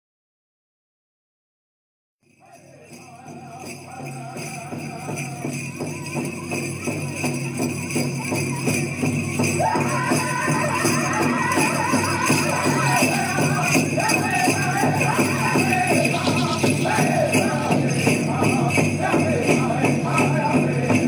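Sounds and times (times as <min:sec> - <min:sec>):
chanting: 0:02.4 - 0:21.0
drum beating steadily: 0:02.8 - 0:21.0
high-pitched singing: 0:09.4 - 0:21.0.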